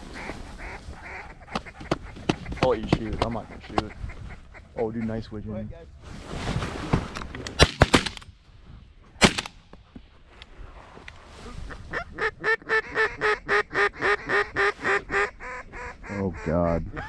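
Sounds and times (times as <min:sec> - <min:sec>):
sharp bangs: 0:07.6 - 0:08.3, 0:09.2 - 0:09.7
duck quacking: 0:11.7 - 0:17.0.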